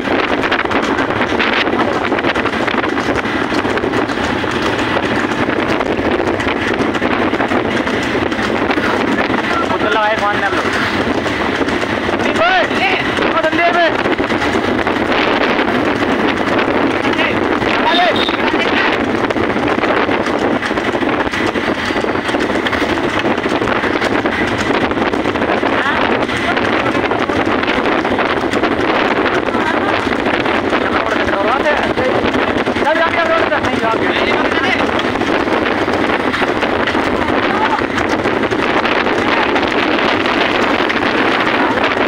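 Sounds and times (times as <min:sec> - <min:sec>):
crackle and rattle: 0:00.0 - 0:17.7
cart wheels rattling on road: 0:00.0 - 0:42.0
hooves on paved road: 0:00.0 - 0:42.0
motorcycle engine running: 0:00.0 - 0:42.0
wind buffeting microphone: 0:00.0 - 0:42.0.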